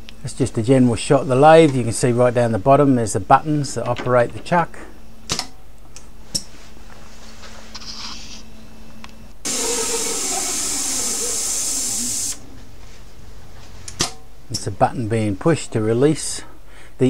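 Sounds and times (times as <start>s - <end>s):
lathe spindle running: 9.5s - 12.4s
short air hiss: 9.5s - 12.4s.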